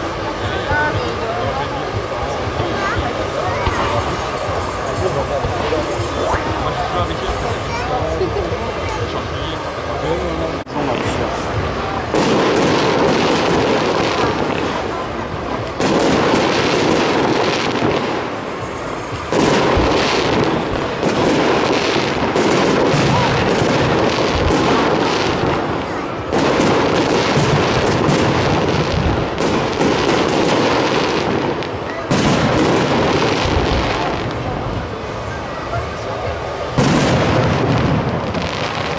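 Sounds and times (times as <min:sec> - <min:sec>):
firework shells bursting: 0:15.6 - 0:34.5.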